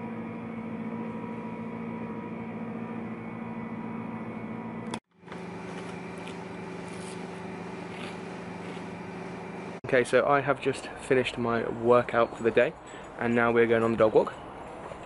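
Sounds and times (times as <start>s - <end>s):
indoor machine hum: 0.0s - 9.9s.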